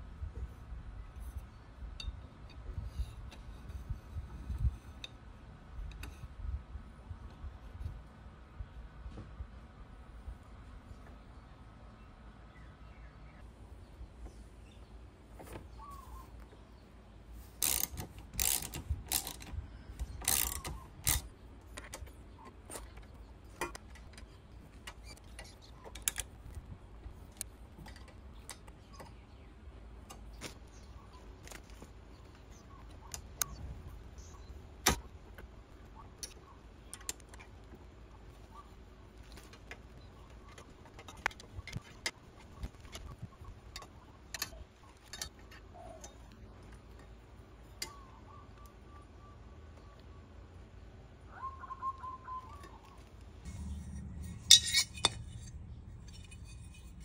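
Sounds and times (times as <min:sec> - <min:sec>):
ratchet clicking: 0:17.6 - 0:19.5, 0:20.1 - 0:21.9.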